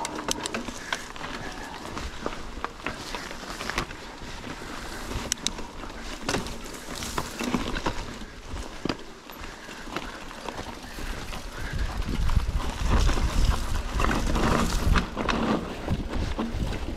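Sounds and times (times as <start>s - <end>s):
bike clicks and rattles: 0.0s - 16.9s
bike tyres on dirt: 0.0s - 16.9s
wind rumble on microphone: 10.8s - 16.9s.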